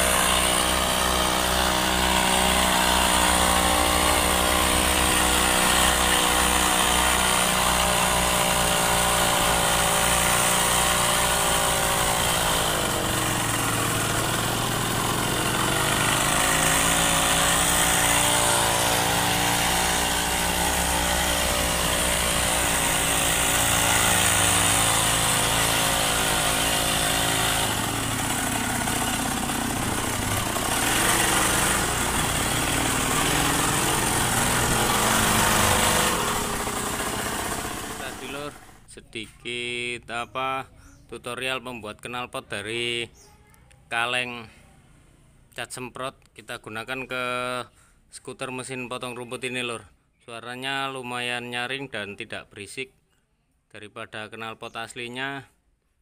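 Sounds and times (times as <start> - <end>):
small two-stroke engine revving: 0.0 - 39.0.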